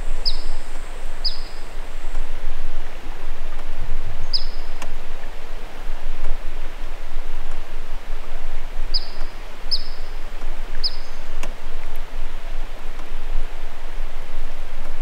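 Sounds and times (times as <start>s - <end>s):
small bird chirping: 0.0s - 2.3s, 4.2s - 4.8s, 8.9s - 11.4s.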